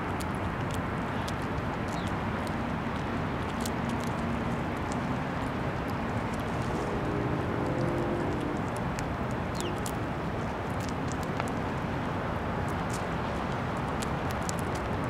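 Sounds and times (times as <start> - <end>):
low even rumble: 3.8 - 11.8.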